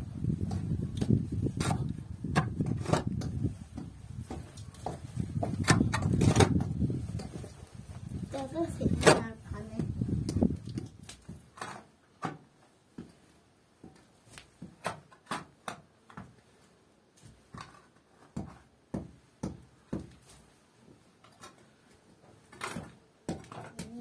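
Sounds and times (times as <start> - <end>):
hoe striking earth and stones: 0.4 - 4.3, 5.4 - 7.3.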